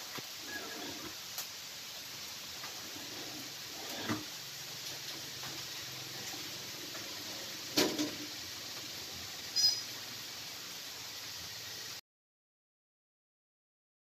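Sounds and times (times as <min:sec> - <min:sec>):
steady rain on puddles: 0:00.0 - 0:12.0.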